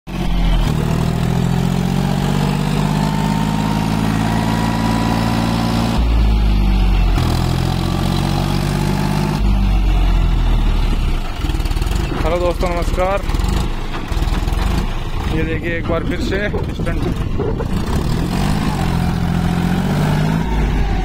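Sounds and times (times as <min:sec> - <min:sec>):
tractor diesel engine running: 0:00.1 - 0:21.0
heavy low rumble: 0:09.4 - 0:21.0.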